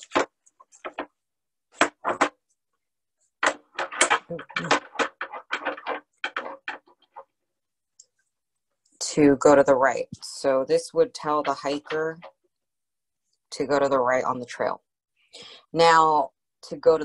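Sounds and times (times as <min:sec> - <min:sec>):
stones knocking on glass: 0:00.0 - 0:01.2, 0:01.8 - 0:02.4, 0:03.4 - 0:07.3.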